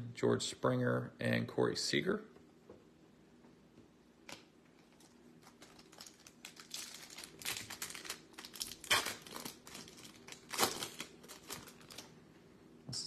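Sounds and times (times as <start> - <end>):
foil wrapper crinkling: 4.3 - 12.1.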